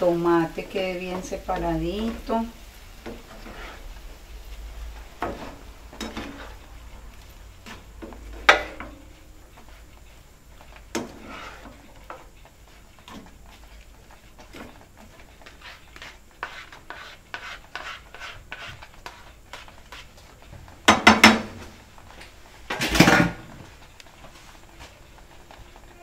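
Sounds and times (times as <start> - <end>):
spatulas scraping a frying pan: 0.0 - 26.0
utensils clattering against pan: 5.2 - 6.7, 20.8 - 21.6.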